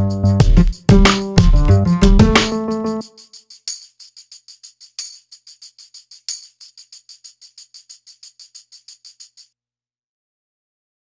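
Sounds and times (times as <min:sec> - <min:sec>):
background music: 0:00.0 - 0:03.2
tambourine playing quick rhythm: 0:00.0 - 0:09.6.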